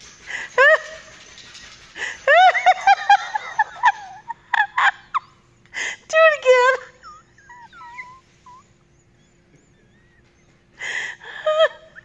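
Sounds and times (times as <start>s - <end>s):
dog whining and moaning: 4.8s - 12.0s.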